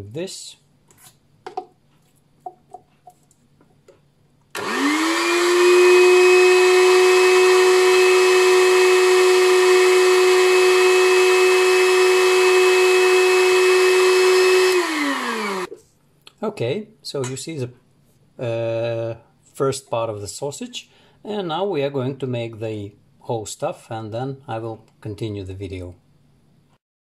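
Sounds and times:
electric meat grinder motor whining: 4.6s - 15.7s.

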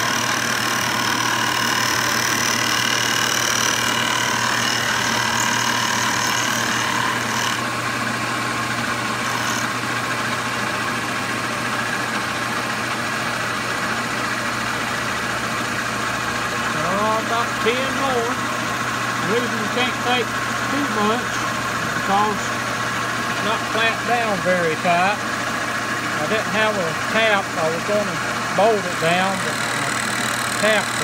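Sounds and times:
high cutting whine: 0.0s - 7.9s, 14.5s - 31.0s
milling machine motor hum: 0.0s - 31.0s.

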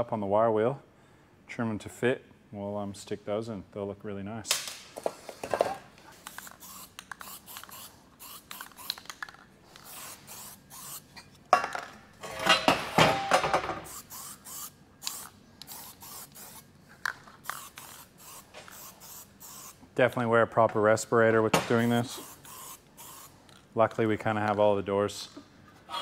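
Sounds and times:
spray can hissing bursts: 6.2s - 9.2s, 9.8s - 11.1s, 13.8s - 16.7s, 17.4s - 19.8s, 21.8s - 23.4s
aerosol can mixing ball rattling: 6.2s - 11.0s, 13.9s - 19.8s, 21.9s - 23.6s.

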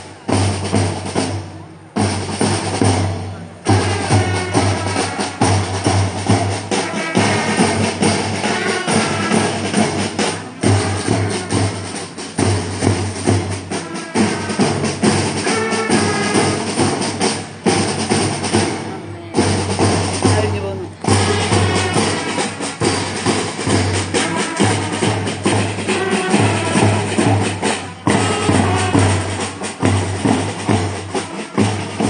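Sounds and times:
bass and snare drums marching: 0.0s - 32.0s
brass instrument phrases: 3.6s - 5.6s, 6.7s - 12.2s, 13.3s - 17.4s, 21.1s - 23.0s, 23.6s - 32.0s.

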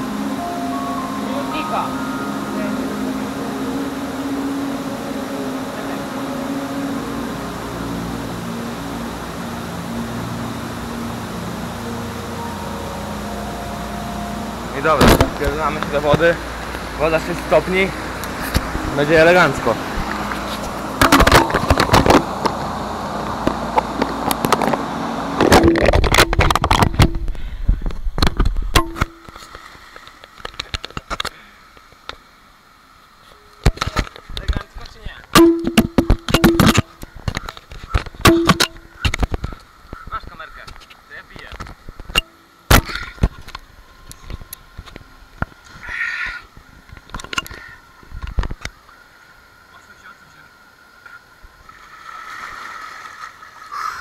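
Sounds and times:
waterfall roaring: 0.0s - 27.4s
rushing noise: 0.0s - 28.2s
water dripping: 35.4s - 40.0s.

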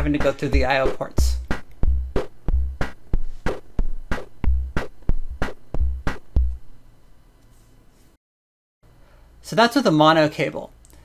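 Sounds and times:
drum machine rhythmic pattern: 0.0s - 6.8s.

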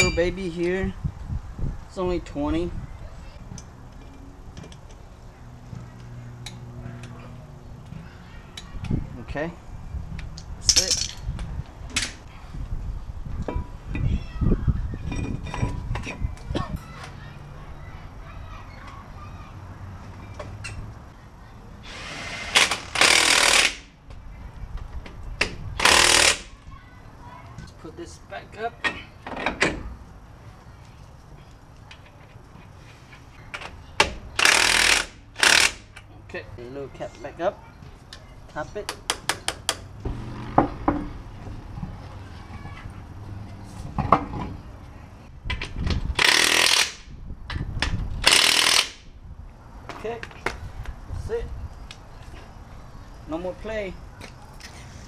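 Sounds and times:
impact wrench hammering lug nuts: 25.8s - 26.5s, 34.4s - 35.9s, 46.2s - 47.0s, 48.2s - 49.0s
impact wrench hammering: 48.2s - 49.0s.

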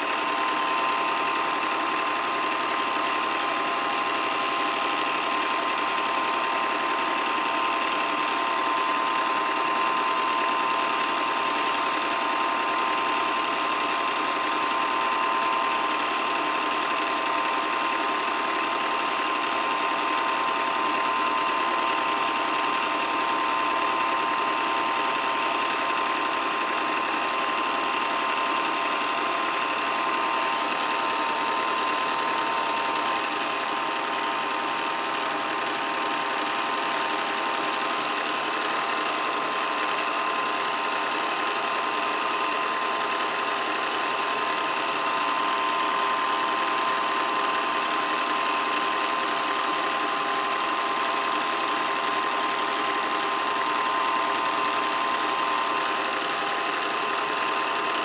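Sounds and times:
film projector whirring: 0.0s - 58.0s.

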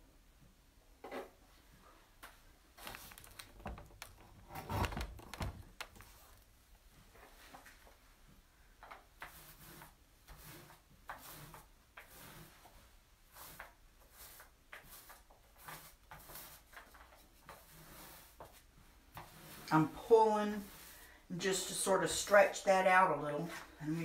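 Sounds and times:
paint roller strokes on countertop: 8.8s - 24.0s.

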